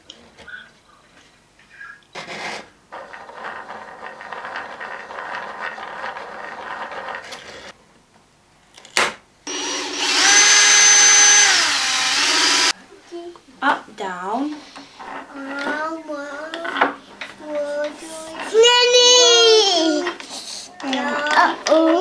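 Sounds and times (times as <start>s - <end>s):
cordless drill drilling into wood: 9.5s - 12.7s.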